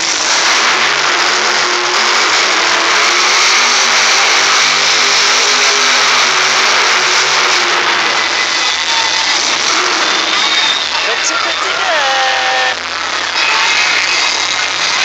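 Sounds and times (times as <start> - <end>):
truck engine revving hard: 0.0 - 11.9.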